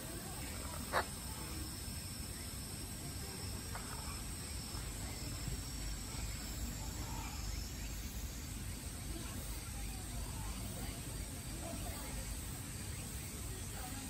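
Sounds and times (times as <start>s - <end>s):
high-pitched insect drone: 0.0s - 14.0s
low background noise: 0.0s - 14.0s.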